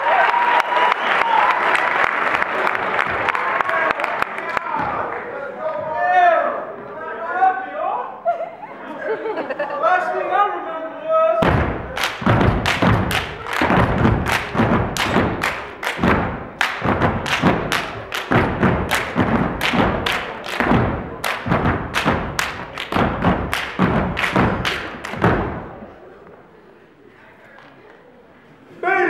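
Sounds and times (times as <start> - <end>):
group clapping in unison: 0.0 - 5.3, 11.4 - 25.8
stomping on wooden stage: 11.4 - 25.9.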